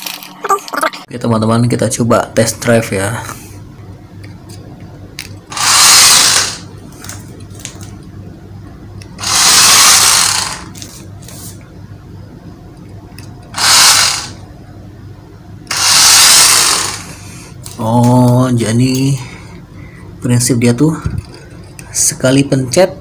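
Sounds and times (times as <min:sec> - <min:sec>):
toy car motor whirring: 0:05.5 - 0:06.6, 0:09.2 - 0:10.8, 0:13.6 - 0:14.4, 0:15.7 - 0:17.1.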